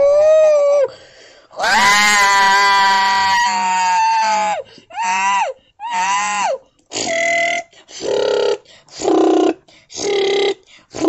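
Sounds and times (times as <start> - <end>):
boy making dinosaur cries: 0.0 - 0.9, 1.6 - 8.6.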